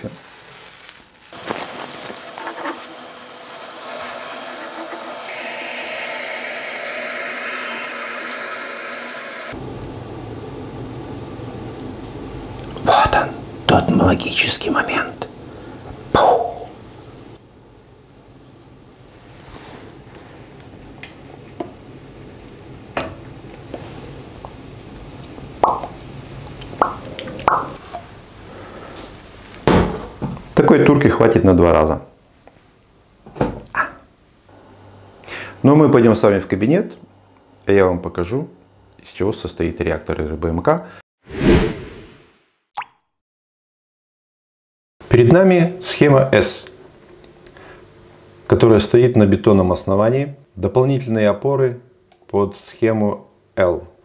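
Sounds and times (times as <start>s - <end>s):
coffee hissing and fizzing: 0.0s - 10.5s
coffee foam bubbling and popping: 23.5s - 27.8s.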